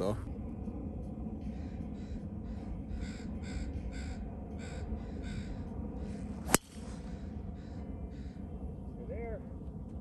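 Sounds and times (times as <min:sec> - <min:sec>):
golf ball struck by club: 0:06.4 - 0:07.0.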